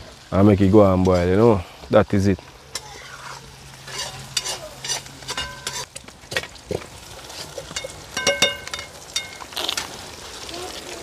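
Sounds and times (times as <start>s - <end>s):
food sizzling: 0.0s - 11.0s
spoon stirring and scraping pot: 2.7s - 6.0s, 7.3s - 9.5s
spoon knocking against pot: 7.8s - 9.4s.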